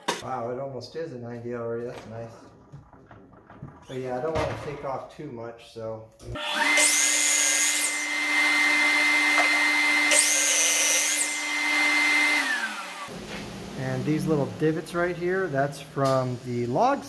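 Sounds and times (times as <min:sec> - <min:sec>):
saw blade cutting wood: 0:06.4 - 0:13.1
miter saw motor whine: 0:08.0 - 0:13.1.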